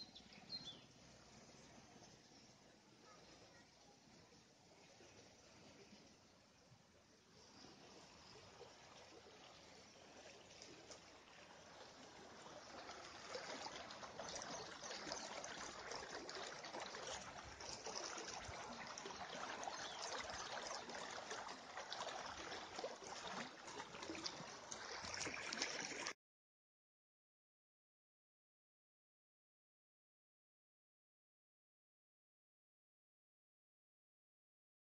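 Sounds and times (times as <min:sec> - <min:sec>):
stream water flowing: 0:00.0 - 0:26.2.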